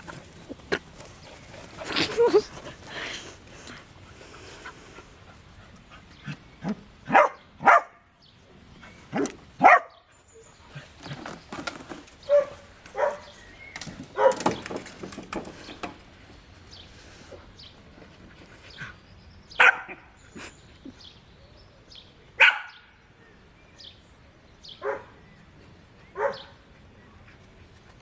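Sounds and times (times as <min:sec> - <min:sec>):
dogs barking: 0:06.6 - 0:08.0, 0:09.1 - 0:10.1, 0:12.3 - 0:13.4, 0:14.1 - 0:14.6, 0:19.6 - 0:20.2, 0:22.4 - 0:22.9, 0:24.8 - 0:25.2, 0:26.1 - 0:26.6.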